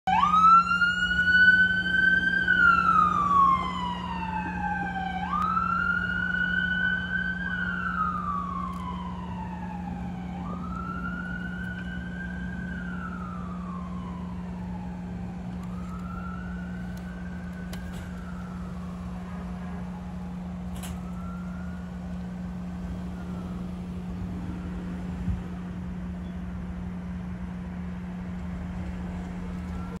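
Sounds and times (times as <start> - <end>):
car siren wailing: 0.1 - 26.2, 29.1 - 30.0.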